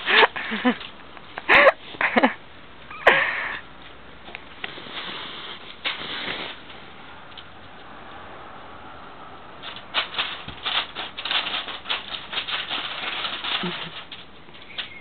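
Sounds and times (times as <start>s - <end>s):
dogs scuffling: 9.6s - 15.0s.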